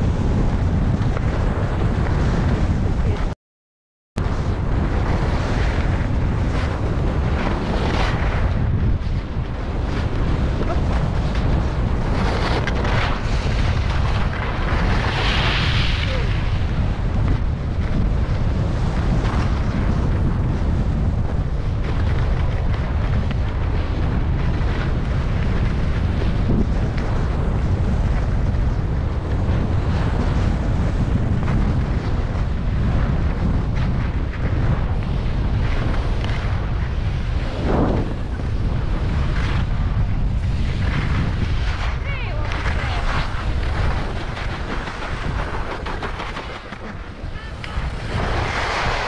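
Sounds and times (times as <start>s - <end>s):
wind buffeting microphone: 0.0s - 3.4s, 4.2s - 49.0s
skis scraping on packed snow: 4.3s - 16.8s, 33.4s - 49.0s.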